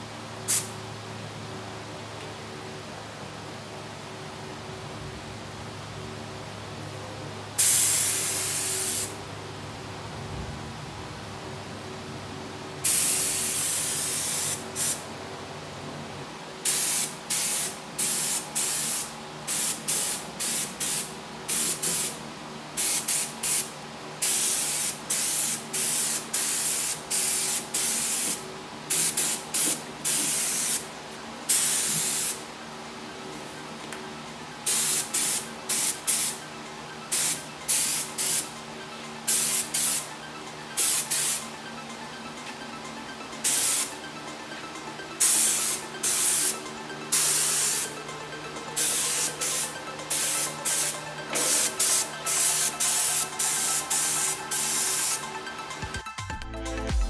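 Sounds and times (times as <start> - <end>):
paint spray gun hissing: 7.6 - 9.2, 16.7 - 22.1, 22.8 - 30.8, 31.5 - 32.4, 48.9 - 55.2.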